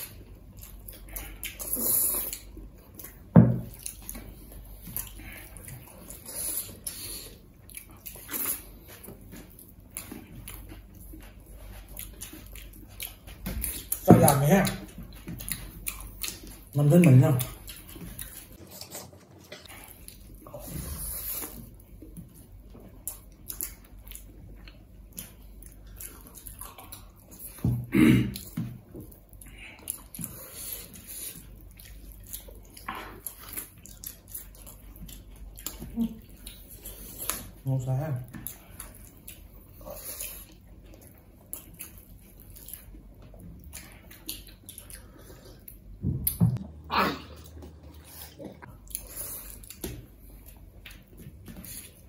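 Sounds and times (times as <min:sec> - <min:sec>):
chewing and lip smacking: 0:00.0 - 0:27.6, 0:28.3 - 0:37.6, 0:38.2 - 0:52.0
loud throat sound: 0:27.8 - 0:28.5.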